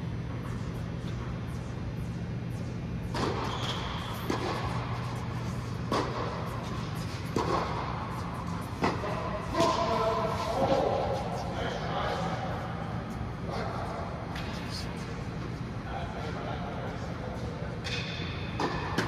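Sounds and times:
balls bouncing on court: 0.3 - 10.0, 17.8 - 19.0
tennis balls hit by rackets: 0.4 - 11.3, 17.8 - 19.0.

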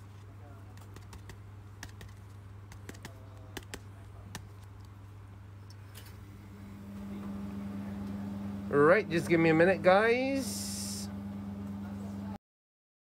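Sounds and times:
steady low hum: 0.0 - 12.4
cards and plastic holders clicking: 0.7 - 5.0.

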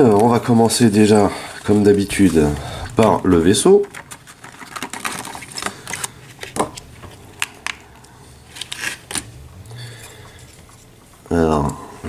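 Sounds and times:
plastic blister tray crackling: 0.0 - 9.2.

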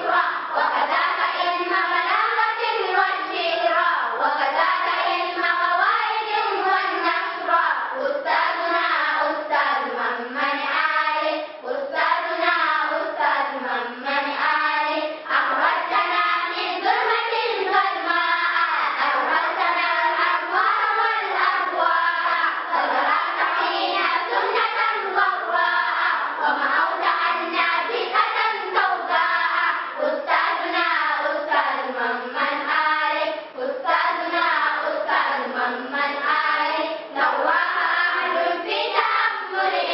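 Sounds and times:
girls choir singing: 0.0 - 39.9.

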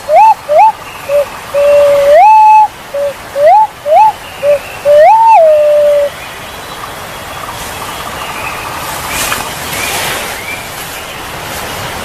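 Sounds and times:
pigeon whistling song: 0.0 - 6.2
steady hiss: 0.0 - 12.0.

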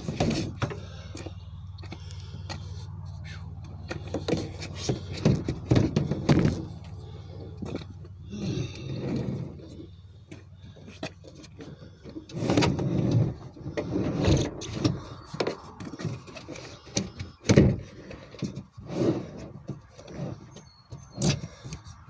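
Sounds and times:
thumps: 3.8 - 6.9.

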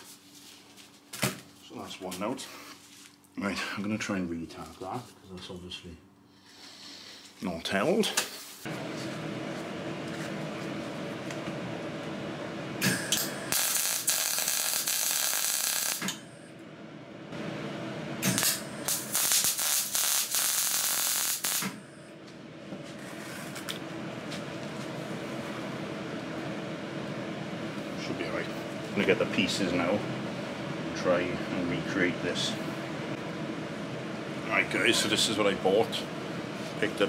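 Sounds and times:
steady hum: 0.0 - 37.0
welder arc crackling: 12.8 - 16.2, 18.2 - 21.8.

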